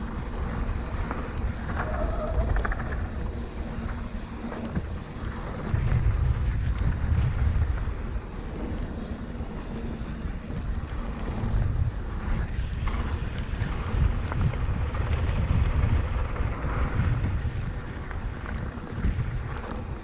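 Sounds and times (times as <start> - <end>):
tyres rumbling on dirt trail: 0.0 - 20.0
wind buffeting microphone: 0.0 - 20.0.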